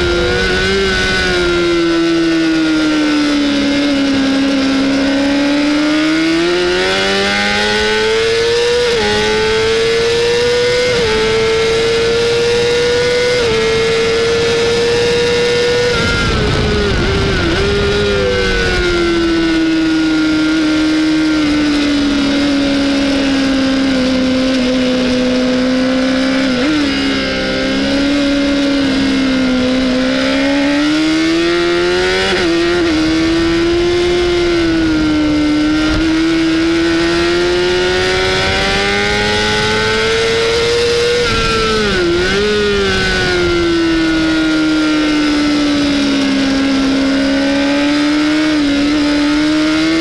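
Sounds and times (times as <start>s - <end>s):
motorcycle engine revving high: 0.0s - 50.0s
wind rushing: 10.4s - 44.9s.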